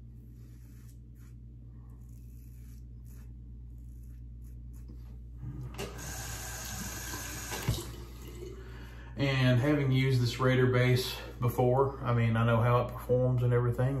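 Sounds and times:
razor scraping stubble: 0.0 - 5.4
tap running: 5.6 - 8.6.

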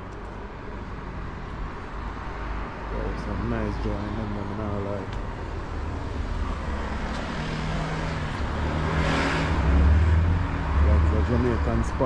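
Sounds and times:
vehicle passing: 2.4 - 12.0.

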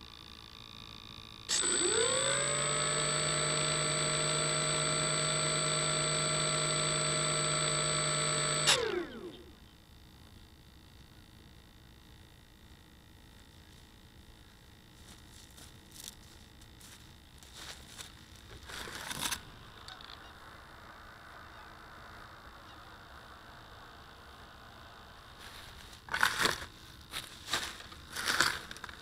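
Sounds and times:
dry straw rustling and crackling: 25.4 - 29.0.

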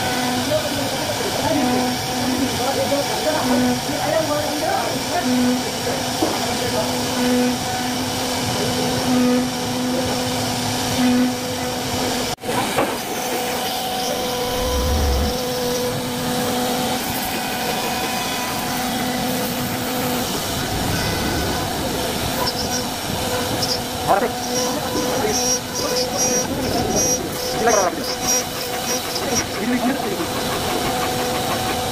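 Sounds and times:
wood router spindle humming: 0.0 - 31.9
cutter hissing in wood: 12.8 - 31.9.

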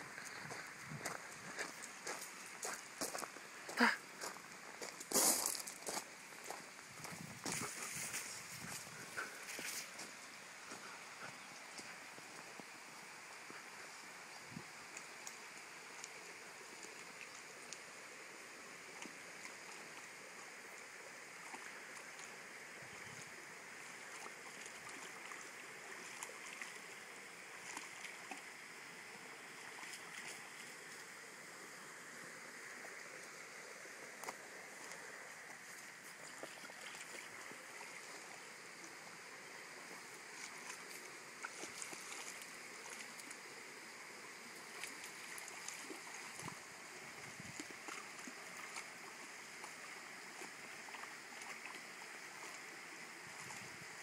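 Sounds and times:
creek water flowing over stones: 0.0 - 54.0
small clicks and splashes: 23.9 - 27.0, 27.6 - 28.6, 29.7 - 31.0, 34.2 - 38.3, 40.4 - 43.5, 44.7 - 46.6, 47.4 - 52.6.

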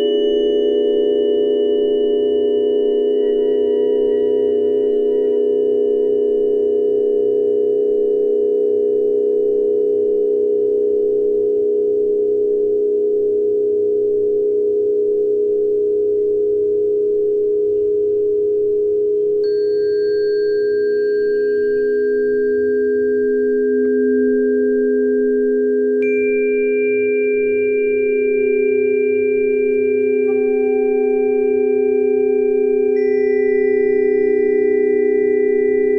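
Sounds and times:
higher ringing tone: 0.0 - 7.8, 19.4 - 35.9
sustained pure tone drone: 0.0 - 35.9.

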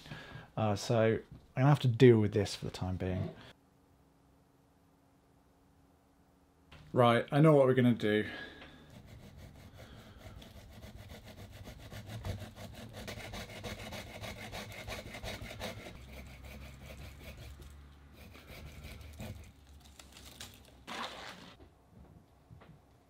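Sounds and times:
hand saw cutting branch: 8.9 - 21.6.

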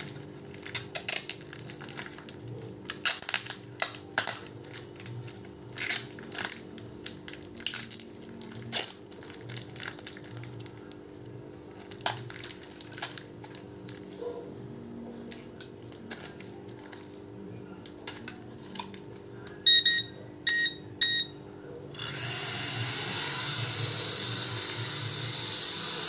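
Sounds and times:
short high electronic beeps: 19.7 - 21.3.

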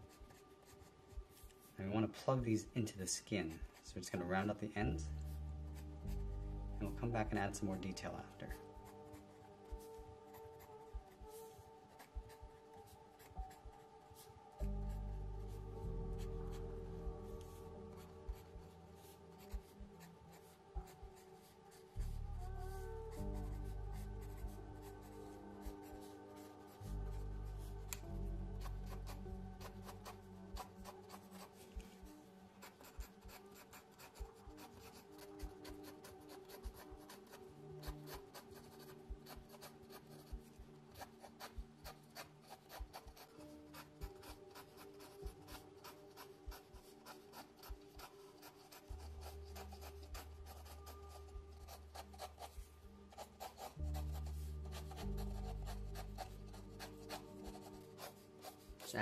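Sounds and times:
pencil scratching on paper: 0.0 - 1.7, 2.6 - 59.0
soft background music: 0.0 - 59.0.

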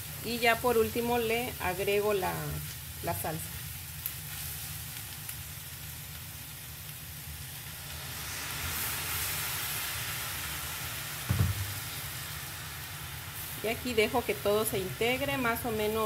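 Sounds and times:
meat sizzling in a frying pan: 0.0 - 16.0
salsa poured into hot pan: 7.6 - 13.6
short low knock: 11.3 - 11.8.

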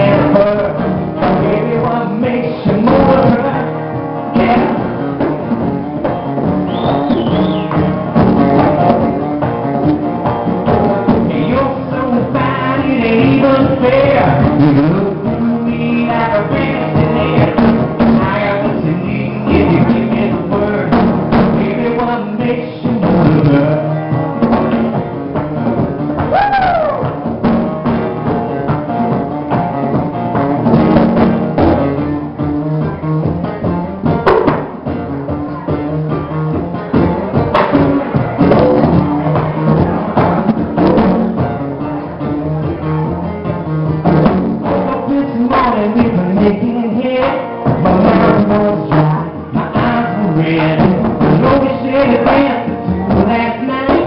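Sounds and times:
man singing: 0.0 - 5.5, 6.7 - 25.1, 35.4 - 54.0
strummed acoustic guitar: 0.0 - 26.4, 27.0 - 54.0
conga drums played by hand: 0.0 - 54.0
congas: 4.3 - 11.5, 33.2 - 43.1.

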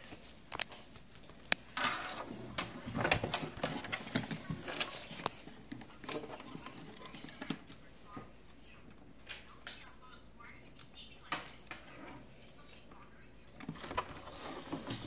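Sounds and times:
rustling of paper and clothing: 0.0 - 9.8.

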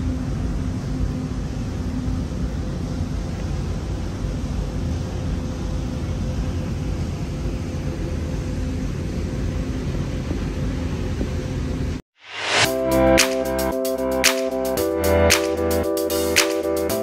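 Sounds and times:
mechanical hum: 0.0 - 17.0
even rushing noise: 12.2 - 16.8.

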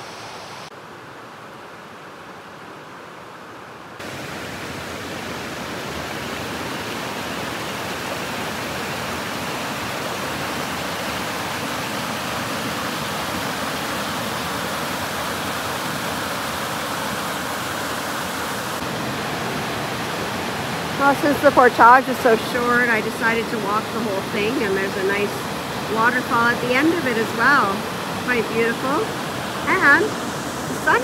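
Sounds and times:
water rushing over rapids: 0.0 - 31.0.

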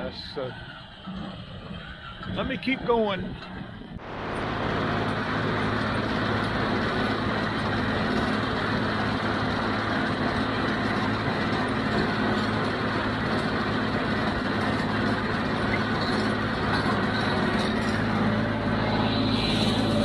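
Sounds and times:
tractor diesel engine running: 0.0 - 20.0
hay baler: 4.0 - 20.0.

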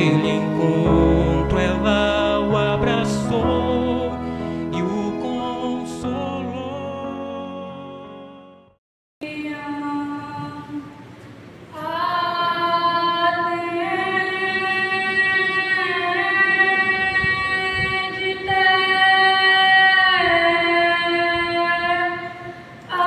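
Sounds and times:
woman singing unaccompanied chant: 9.2 - 11.1, 11.7 - 23.0.

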